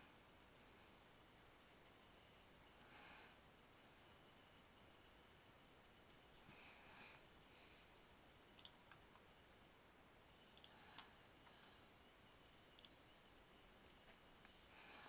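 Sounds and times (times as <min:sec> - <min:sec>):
computer mouse clicks: 0:08.6 - 0:09.3, 0:10.5 - 0:11.6, 0:12.7 - 0:13.0, 0:13.7 - 0:15.0.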